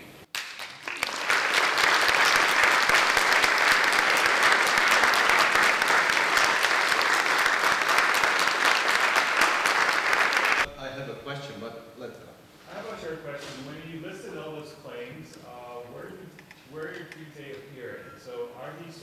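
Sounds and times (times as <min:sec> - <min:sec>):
audience applauding: 0:00.3 - 0:10.7.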